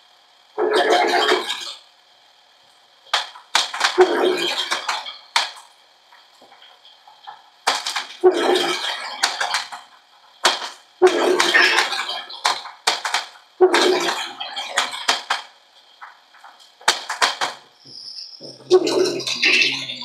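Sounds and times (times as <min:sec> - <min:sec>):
plastic clattering: 0:03.1 - 0:17.7.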